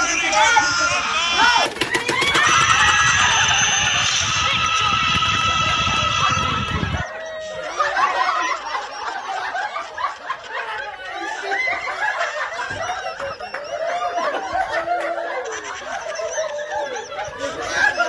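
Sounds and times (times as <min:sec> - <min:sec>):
group of people laughing: 0:00.0 - 0:18.0.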